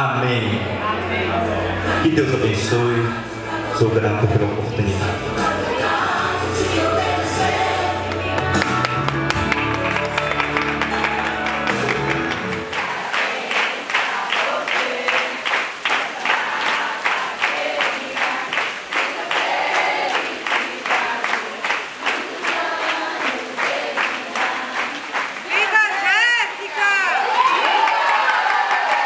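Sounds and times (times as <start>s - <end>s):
voices singing along: 0.2s - 29.0s
group clapping in rhythm: 5.4s - 29.0s.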